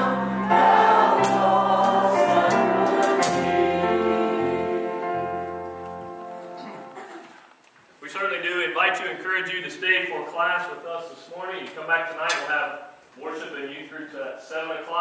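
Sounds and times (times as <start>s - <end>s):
drums and bass accompaniment: 0.0s - 4.1s
congregation singing a hymn: 0.0s - 6.3s.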